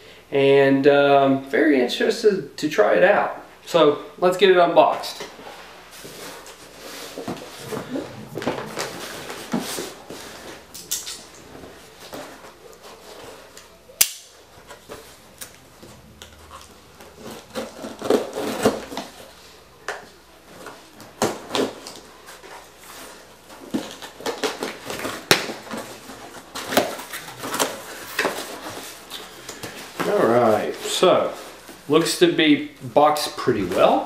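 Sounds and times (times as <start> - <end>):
packing tape tearing off box: 16.2 - 19.4, 21.2 - 30.4.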